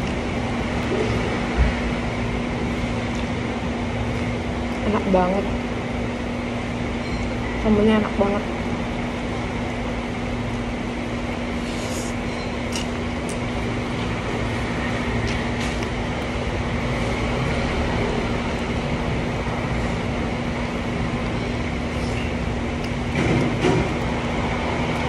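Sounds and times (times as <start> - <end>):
steady mechanical hum: 0.0 - 25.0
chewing and eating smacks: 12.6 - 13.6, 15.2 - 16.4.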